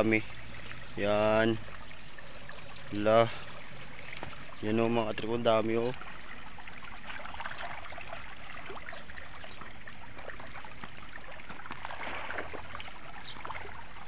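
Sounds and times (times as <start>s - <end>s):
fish splashing at water surface: 5.9s - 14.0s.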